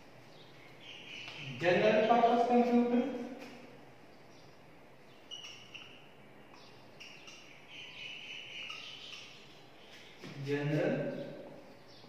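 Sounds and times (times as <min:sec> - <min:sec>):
marker squeaking on whiteboard: 0:05.3 - 0:06.0.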